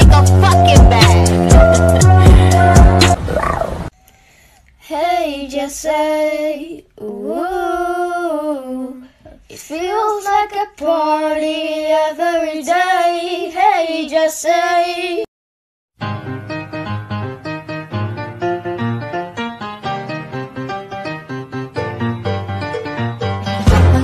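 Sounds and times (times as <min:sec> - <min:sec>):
person singing: 0:00.0 - 0:03.2, 0:23.5 - 0:24.0.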